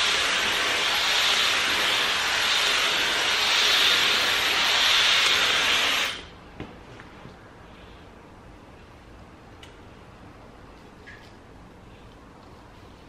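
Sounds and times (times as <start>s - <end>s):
hair dryer blowing: 0.0s - 6.3s.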